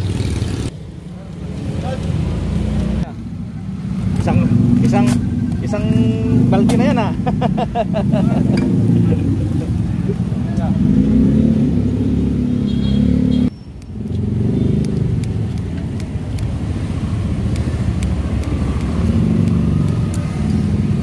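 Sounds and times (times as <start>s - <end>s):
vehicle engine rumbling: 0.0s - 21.0s
scissors snipping: 13.8s - 16.6s, 17.4s - 20.4s.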